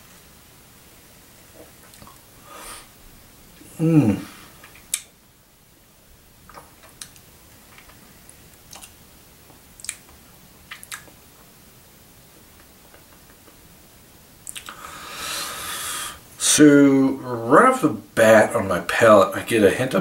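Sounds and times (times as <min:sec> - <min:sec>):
lip smacks and tongue clicks: 0:01.6 - 0:02.2, 0:04.6 - 0:05.1, 0:06.5 - 0:08.0, 0:08.6 - 0:11.5, 0:12.6 - 0:13.7, 0:14.4 - 0:14.8.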